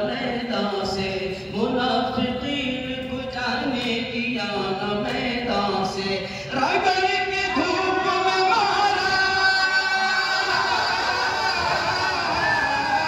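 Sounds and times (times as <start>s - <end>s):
man singing through microphone: 0.0s - 13.0s.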